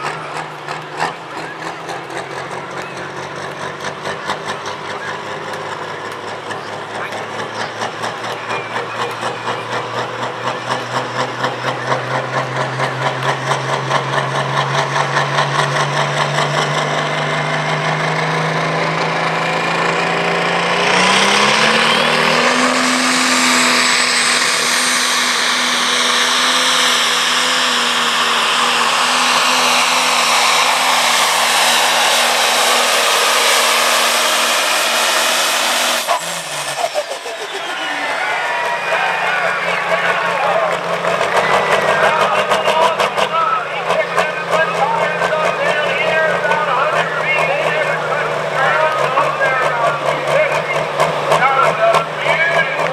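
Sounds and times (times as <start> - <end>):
tractor diesel engine revving: 0.0 - 52.9.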